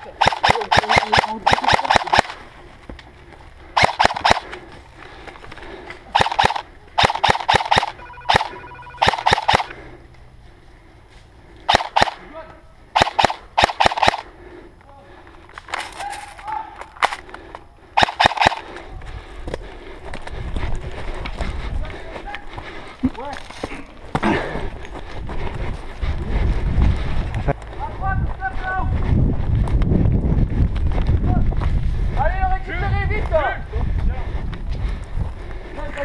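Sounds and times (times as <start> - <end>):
airsoft rifle bursts: 0.0 - 2.4, 3.8 - 4.6, 6.1 - 9.9, 11.7 - 12.3, 13.0 - 14.3, 18.0 - 18.7.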